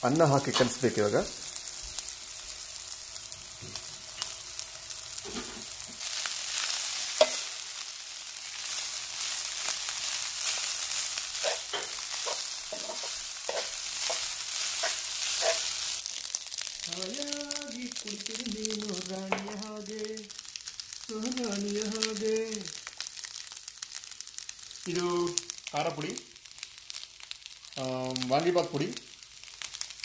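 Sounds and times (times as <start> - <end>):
vegetables sizzling in oil: 0.0 - 30.0
metal spatula scraping a pan: 11.4 - 15.8.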